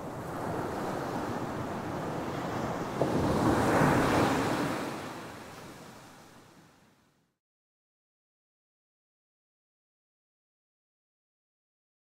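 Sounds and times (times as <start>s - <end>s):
ocean waves breaking on a beach: 0.0s - 7.2s.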